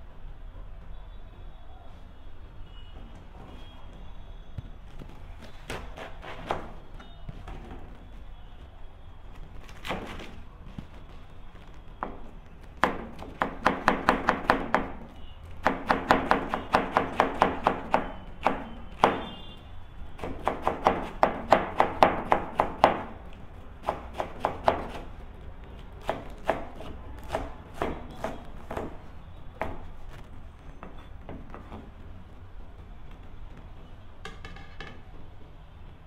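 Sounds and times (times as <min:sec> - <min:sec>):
knife chopping cabbage: 0:05.4 - 0:06.9, 0:09.6 - 0:11.0, 0:12.0 - 0:19.5, 0:20.1 - 0:30.2.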